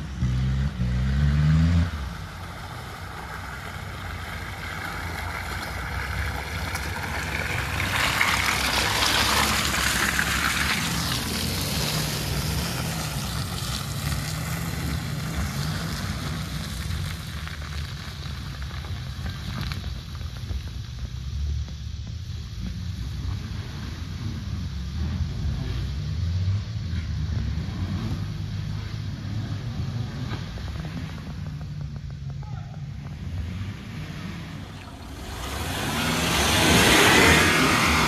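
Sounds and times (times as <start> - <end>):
tyres through mud: 0.0 - 38.0
suv engine running: 1.9 - 38.0
loud engine drone: 34.3 - 38.0.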